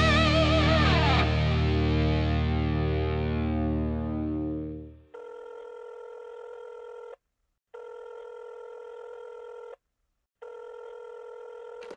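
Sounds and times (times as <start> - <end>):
telephone ringing tone: 5.2 - 7.2, 7.8 - 9.7, 10.4 - 11.9.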